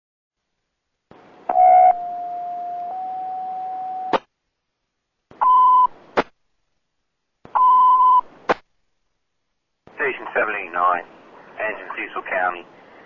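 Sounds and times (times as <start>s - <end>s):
radio hiss: 9.9s - 13.0s.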